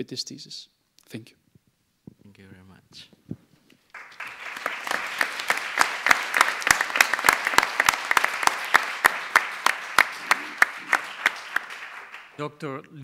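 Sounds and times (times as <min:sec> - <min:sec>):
audience applauding: 0:03.9 - 0:12.4.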